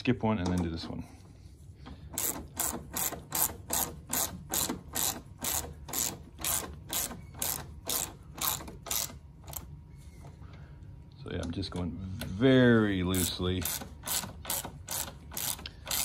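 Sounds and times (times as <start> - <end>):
ratchet pawl clicking: 2.1 - 9.7, 13.1 - 16.0.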